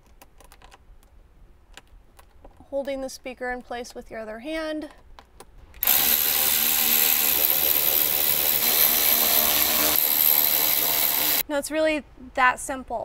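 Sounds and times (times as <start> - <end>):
cordless drill whirring: 5.8 - 11.4.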